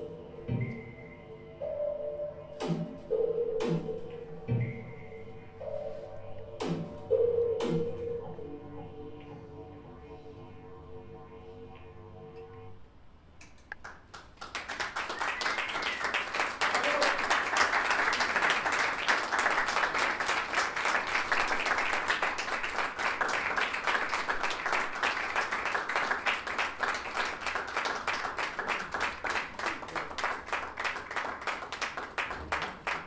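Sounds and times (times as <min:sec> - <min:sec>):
audience applauding: 0:13.6 - 0:33.0.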